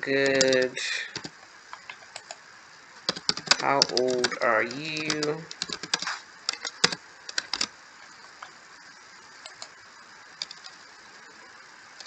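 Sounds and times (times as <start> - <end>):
faint hiss: 0.0 - 12.0
keyboard keystrokes: 3.1 - 4.4, 5.0 - 7.7.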